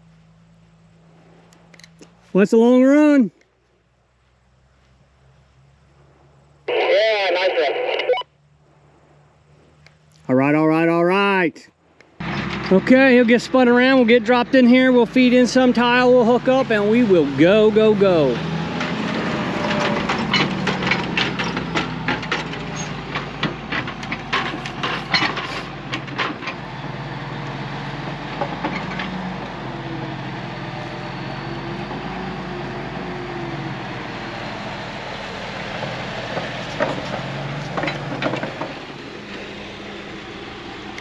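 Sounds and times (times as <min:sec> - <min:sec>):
tractor diesel engine running: 0:00.0 - 0:10.2, 0:11.9 - 0:41.0
sharp clanks and cracks: 0:19.6 - 0:26.6.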